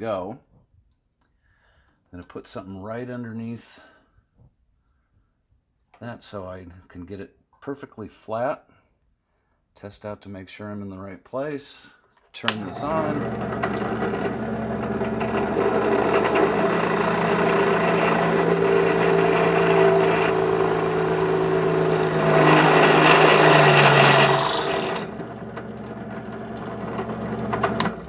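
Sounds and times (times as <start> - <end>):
drill bit cutting steel pipe: 12.5 - 28.0
drill press motor hum: 12.5 - 28.0.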